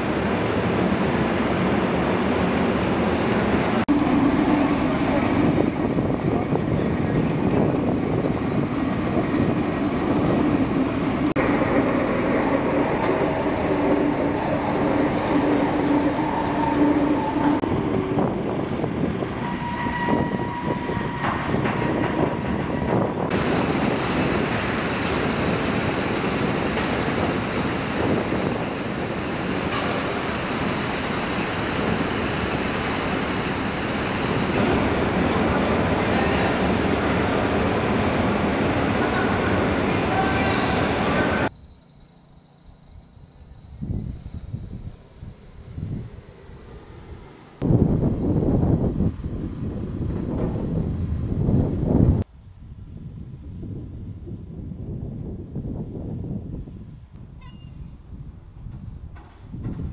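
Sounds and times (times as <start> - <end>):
short high squeaks: 30.8 - 34.2, 57.4 - 58.0.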